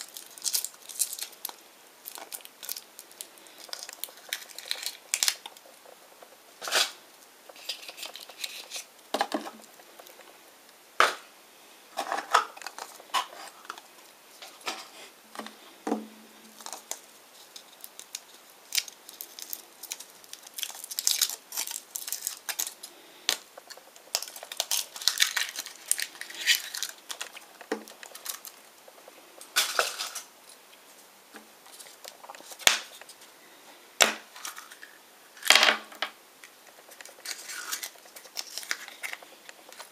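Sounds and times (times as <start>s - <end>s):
foil wrapper crinkling: 0.0s - 6.0s, 6.6s - 8.9s, 16.5s - 30.6s, 31.6s - 33.2s, 36.6s - 39.9s.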